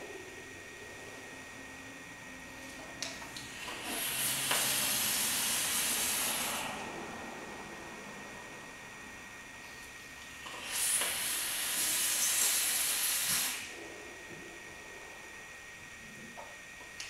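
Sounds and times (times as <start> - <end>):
vape coils sizzling and hissing: 3.4 - 6.7, 9.8 - 13.8.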